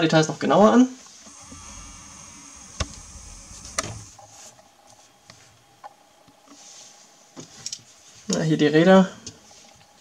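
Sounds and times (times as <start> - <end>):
thin steady hum: 1.0 - 7.0
sharp clicks: 1.3 - 4.2.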